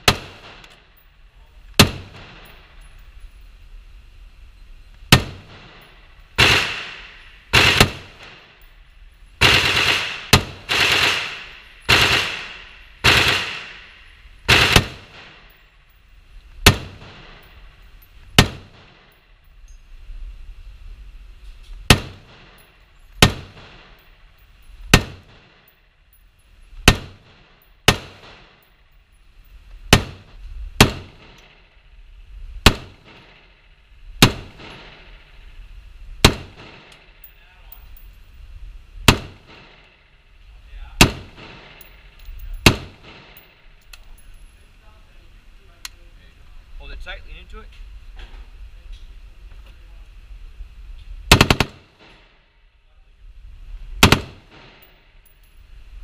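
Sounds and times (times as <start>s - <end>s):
rifle shots echoing: 0.0s - 1.0s, 1.7s - 2.7s, 5.1s - 8.6s, 9.4s - 15.6s, 16.6s - 17.6s, 18.3s - 19.2s, 21.9s - 24.1s, 26.8s - 28.7s, 29.9s - 31.7s, 32.6s - 33.6s, 34.2s - 35.4s, 36.2s - 37.3s, 39.1s - 40.2s, 41.0s - 43.8s, 51.3s - 52.4s, 54.0s - 55.0s.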